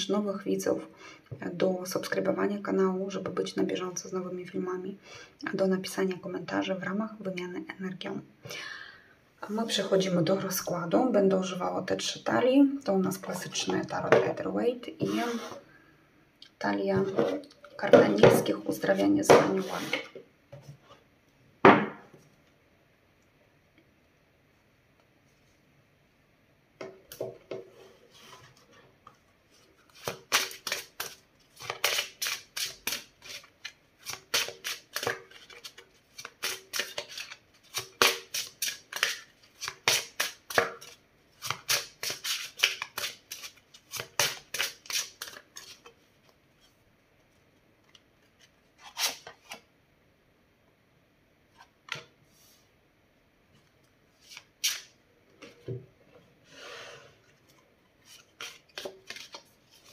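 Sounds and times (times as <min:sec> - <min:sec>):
cards being shuffled: 0:29.9 - 0:45.9, 0:54.2 - 0:55.5, 0:58.0 - 0:59.9.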